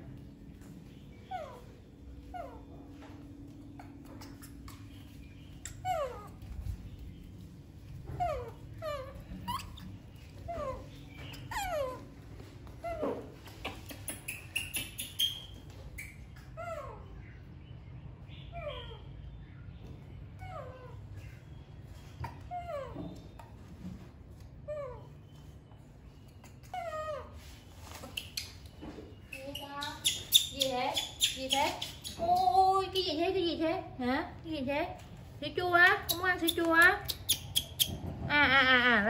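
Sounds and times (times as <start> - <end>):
baby monkey calling: 3.8 - 6.6, 8.1 - 12.2, 12.8 - 17.4, 18.3 - 19.2, 28.0 - 33.4, 35.8 - 39.0.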